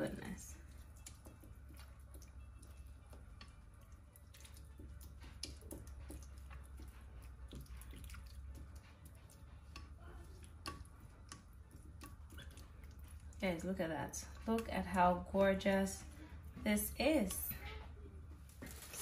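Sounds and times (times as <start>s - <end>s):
low steady hum: 0.0s - 19.0s
hand rubbing wet paste into meat: 0.3s - 13.6s.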